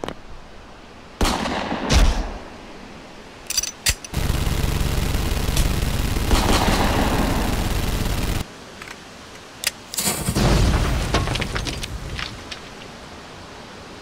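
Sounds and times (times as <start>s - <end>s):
automatic gunfire: 4.1s - 8.4s.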